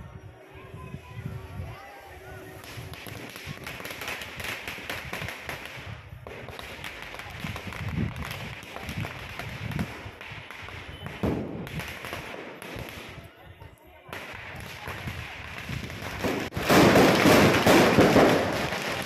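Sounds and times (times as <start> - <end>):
firecrackers crackling and popping: 1.0 - 19.0.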